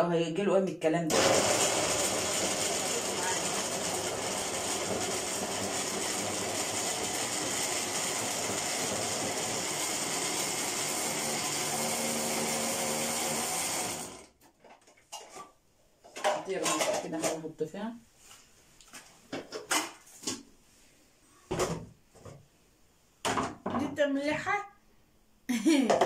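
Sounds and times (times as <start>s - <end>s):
blender running: 1.1s - 14.4s.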